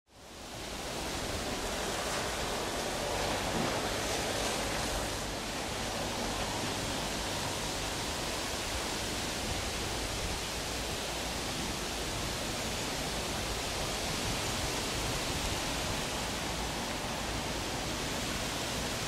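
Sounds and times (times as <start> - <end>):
outdoor hiss: 0.1 - 19.0.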